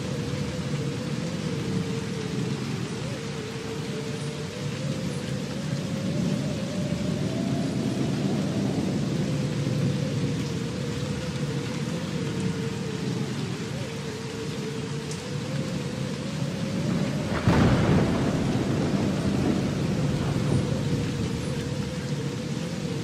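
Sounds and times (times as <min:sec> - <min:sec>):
steady rushing noise: 0:00.0 - 0:23.0
low rumble: 0:16.8 - 0:23.0.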